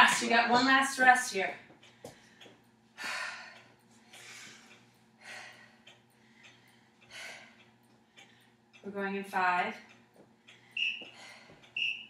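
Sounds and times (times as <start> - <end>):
woman breathing hard: 1.9 - 8.6, 10.5 - 11.8.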